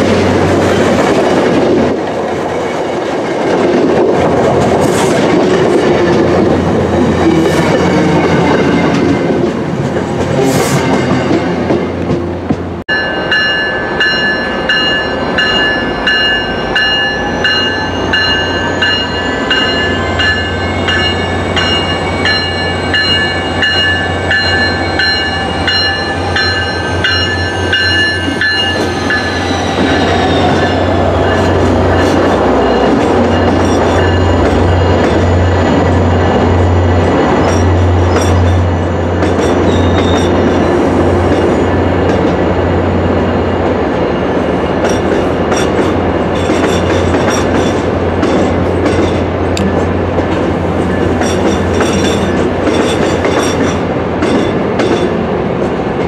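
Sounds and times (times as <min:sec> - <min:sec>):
diesel locomotive engine passing: 0:00.0 - 0:56.0
locomotive bell ringing: 0:12.9 - 0:40.7.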